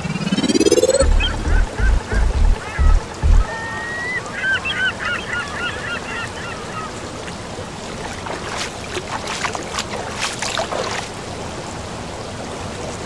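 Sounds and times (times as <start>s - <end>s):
birds calling: 0.0s - 7.4s
deep thumps: 1.0s - 3.5s.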